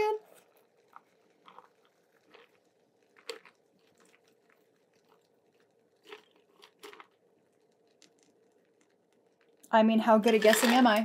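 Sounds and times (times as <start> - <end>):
drink pouring through strainer: 0.3 - 9.6.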